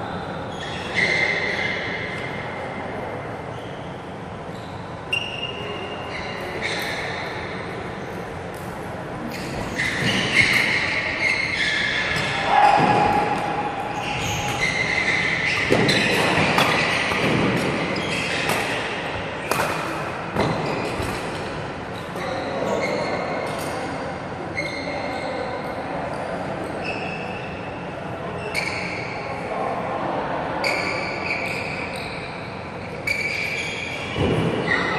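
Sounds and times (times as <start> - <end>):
rackets striking shuttlecock: 12.1 - 21.6.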